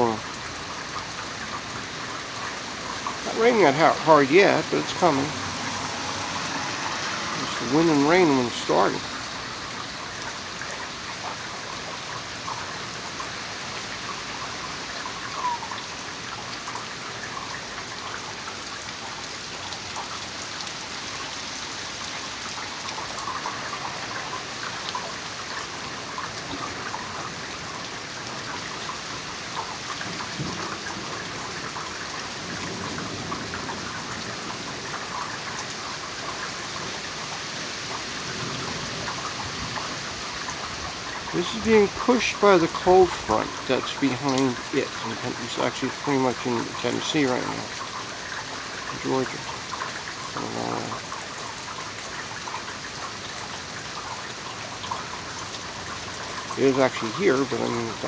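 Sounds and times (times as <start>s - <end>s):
rain pattering: 0.0s - 58.0s.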